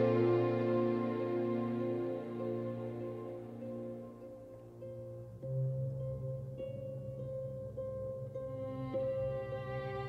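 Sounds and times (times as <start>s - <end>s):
string orchestra playing soft notes: 0.0s - 5.2s, 8.4s - 10.0s.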